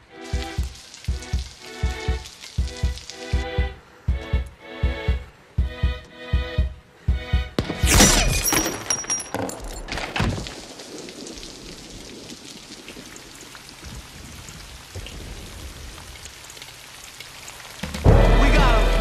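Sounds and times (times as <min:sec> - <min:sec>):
steady rain falling: 0:00.0 - 0:07.9, 0:08.5 - 0:19.0
sharp bangs and debris impacts: 0:07.6 - 0:10.7.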